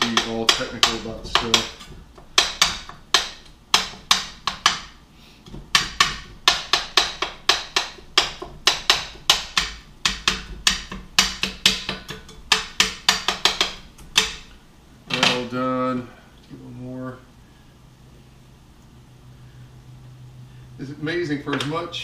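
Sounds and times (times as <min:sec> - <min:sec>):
spatula tapping frying pan: 0:00.0 - 0:14.6.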